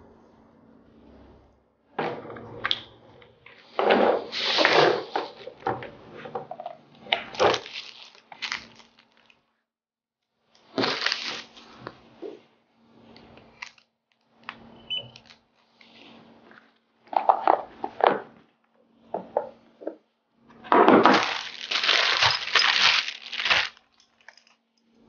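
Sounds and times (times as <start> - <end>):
plastic bags crinkling: 7.2 - 9.4, 10.7 - 11.7, 21.0 - 24.6.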